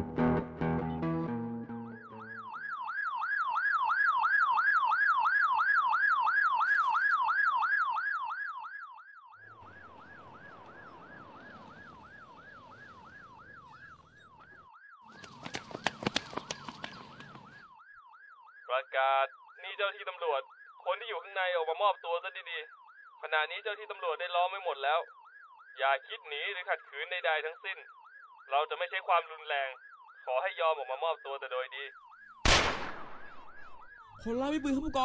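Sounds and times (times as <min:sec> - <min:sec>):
police siren yelping: 0:00.8 - 0:18.7, 0:31.8 - 0:32.4, 0:33.0 - 0:35.0.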